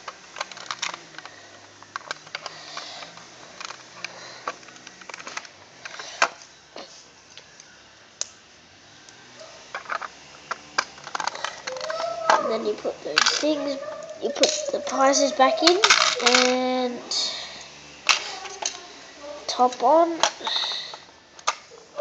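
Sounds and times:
plastic bricks clicking and rattling: 0.0 - 6.4, 9.7 - 16.6.

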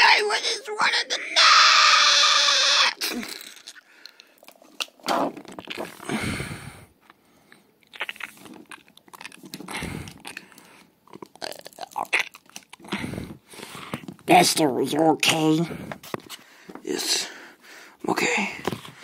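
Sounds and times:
person making chewing noises: 3.0 - 6.4, 7.4 - 14.3.

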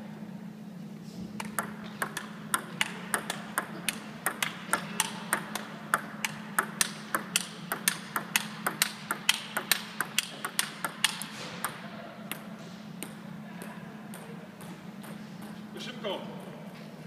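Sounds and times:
steady low hum: 0.0 - 17.0
table tennis ball clicking: 1.4 - 13.2.

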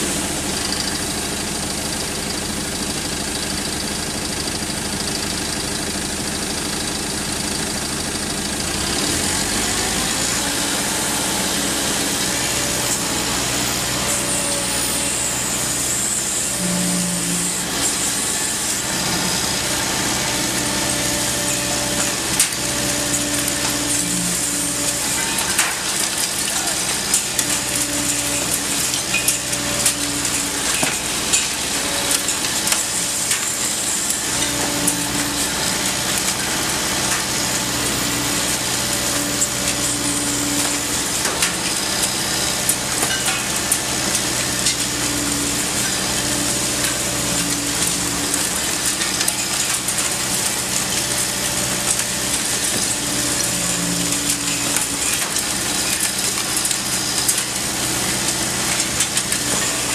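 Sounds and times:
diesel engine running: 0.0 - 59.9
concrete breaking and debris falling: 18.3 - 59.9.

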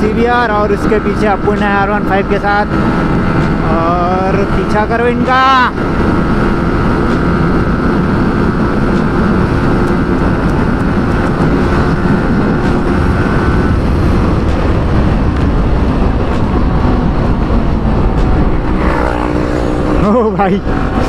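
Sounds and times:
motorcycle engine running: 0.0 - 21.0
wind rush on microphone: 0.0 - 21.0.

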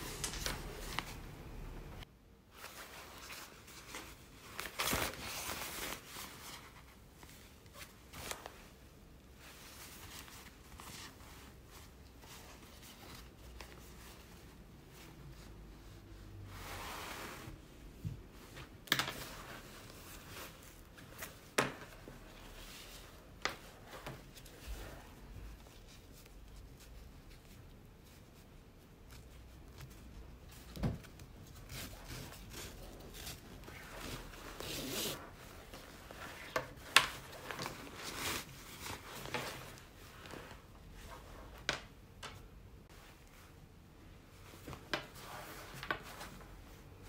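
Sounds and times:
fabric bag rustling: 31.3 - 41.7.

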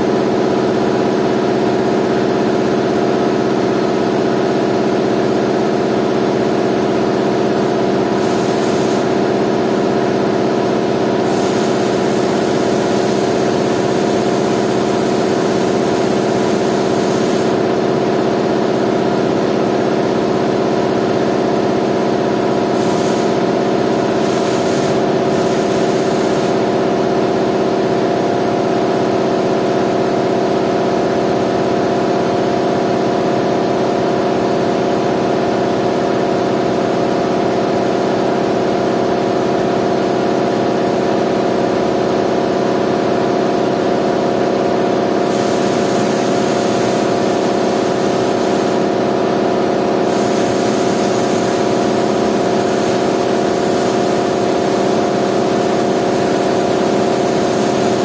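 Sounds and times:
steady machine drone: 0.0 - 58.0.

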